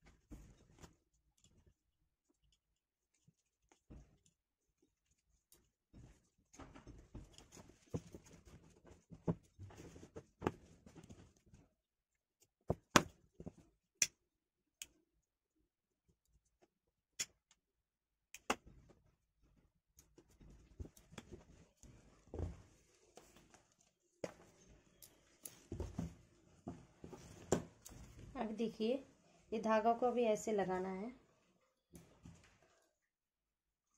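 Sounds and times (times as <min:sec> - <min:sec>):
cord rustling: 0:00.0 - 0:13.9, 0:18.5 - 0:28.4.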